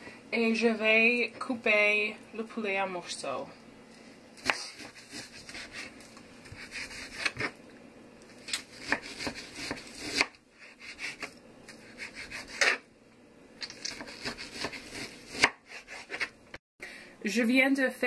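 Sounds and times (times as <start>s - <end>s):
knife scraping through meat: 4.4s - 7.6s, 8.5s - 12.8s, 13.9s - 16.3s.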